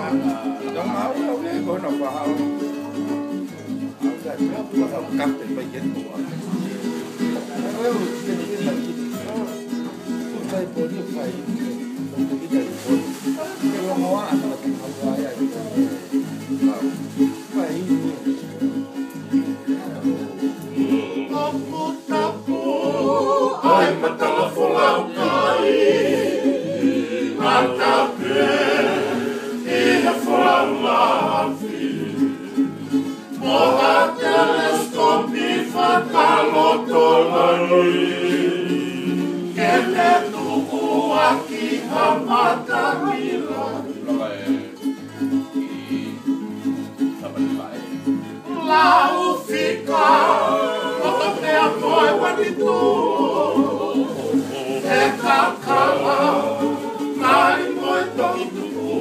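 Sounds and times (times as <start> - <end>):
strummed acoustic guitars: 0.0 - 59.0
men singing together: 20.4 - 44.7, 48.5 - 59.0.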